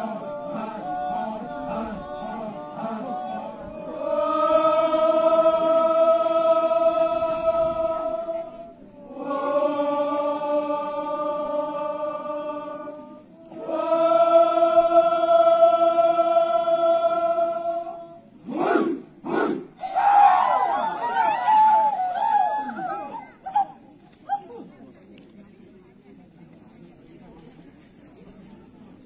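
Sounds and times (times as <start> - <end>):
chorus chanting in unison: 0.0 - 23.0.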